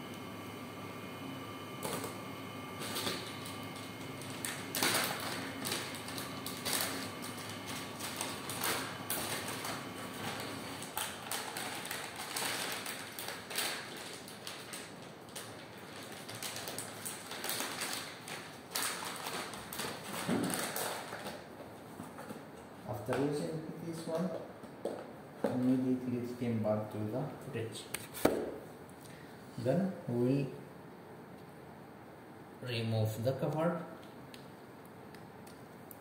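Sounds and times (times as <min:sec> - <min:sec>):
faint steady hum: 0:00.0 - 0:18.0
foil pouch crinkling: 0:02.8 - 0:21.5.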